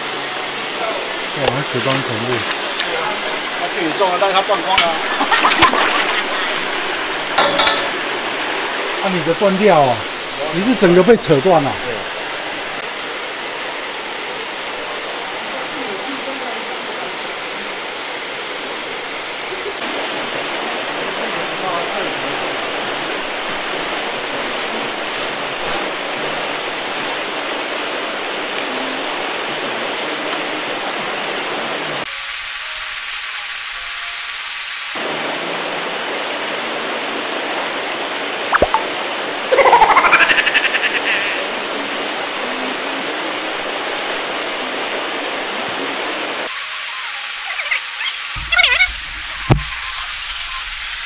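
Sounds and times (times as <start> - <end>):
aerators splashing water: 0.7 - 12.8.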